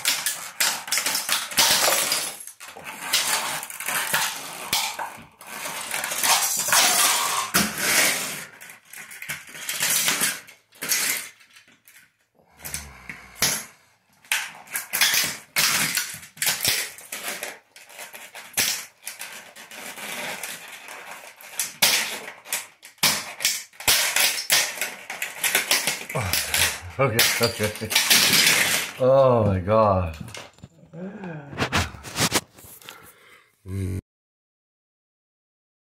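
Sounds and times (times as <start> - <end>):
plastic toy cracking underfoot: 0.0 - 12.1, 12.7 - 29.0
plastic pieces clattering: 0.0 - 30.7.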